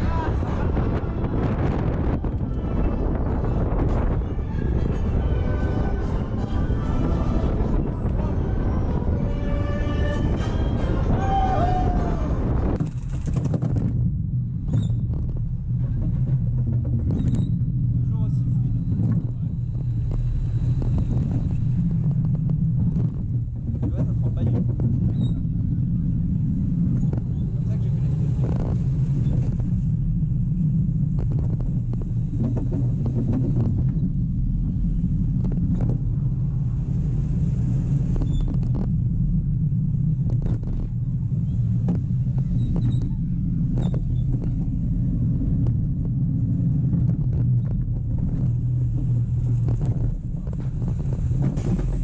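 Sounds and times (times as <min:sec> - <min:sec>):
roller coaster rumbling on track: 0:00.0 - 0:52.0
rattles and knocks: 0:12.7 - 0:17.9, 0:20.9 - 0:25.6, 0:31.1 - 0:34.2.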